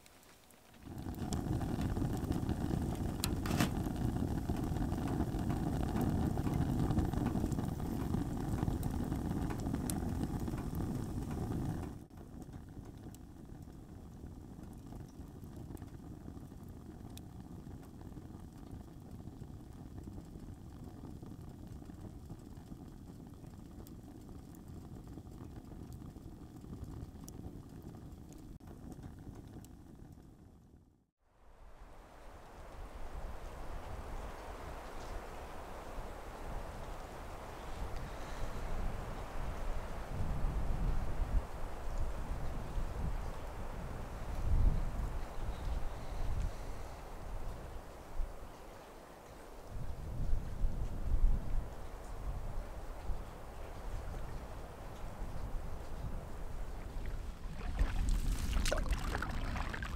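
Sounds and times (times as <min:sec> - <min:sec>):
wood stove fire roaring: 0:00.0 - 0:31.0, 0:32.0 - 0:59.9
fire crackles: 0:00.0 - 0:59.9
steady background hiss: 0:31.3 - 0:50.0.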